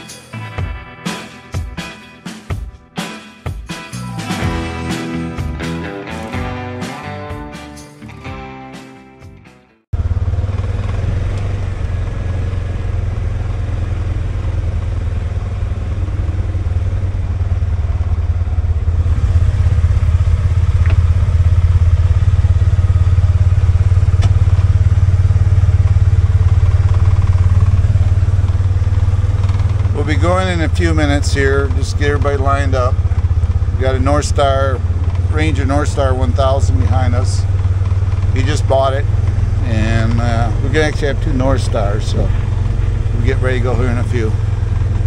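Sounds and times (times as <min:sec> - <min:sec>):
guitar music: 0:00.0 - 0:09.8, 0:29.8 - 0:45.0
engine idling with low rumble: 0:10.0 - 0:45.0.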